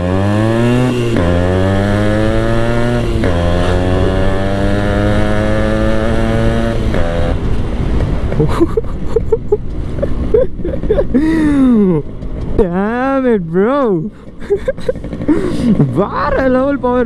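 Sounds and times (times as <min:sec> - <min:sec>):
two-stroke motorcycle engine accelerating: 0:00.0 - 0:08.6, 0:09.2 - 0:17.0.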